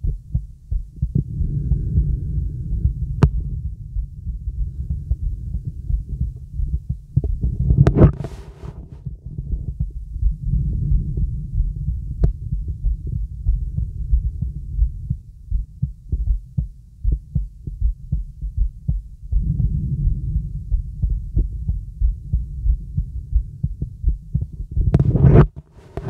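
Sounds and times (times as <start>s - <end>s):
heartbeat thudding: 0.0s - 26.0s
breath sounds through stethoscope: 1.2s - 3.4s, 7.3s - 9.0s.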